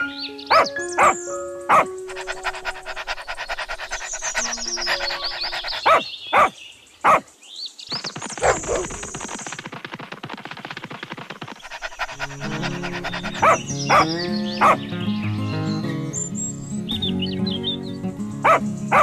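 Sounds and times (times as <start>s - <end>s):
background music: 0.0s - 6.0s, 11.8s - 19.0s
dog barking: 0.5s - 7.3s, 8.4s - 9.0s, 11.6s - 14.8s, 18.4s - 19.0s.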